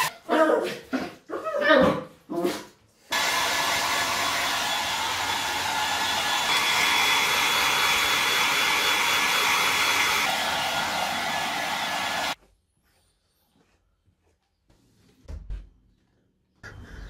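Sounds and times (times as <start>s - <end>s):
hair dryer blowing: 3.1s - 12.4s.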